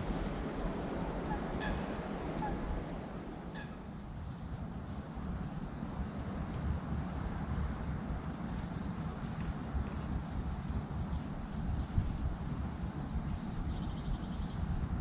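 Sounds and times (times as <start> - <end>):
steady rushing background noise: 0.0 - 15.0
songbirds chirping and whistling: 0.4 - 4.6, 12.0 - 14.8.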